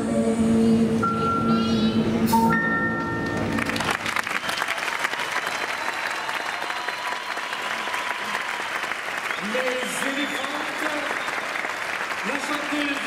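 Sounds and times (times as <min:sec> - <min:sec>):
audience applause: 0:03.4 - 0:13.0.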